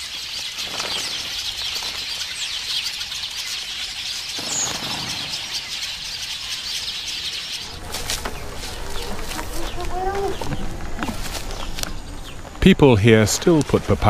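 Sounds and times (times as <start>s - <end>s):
birds chattering and chirping: 0.0s - 14.0s.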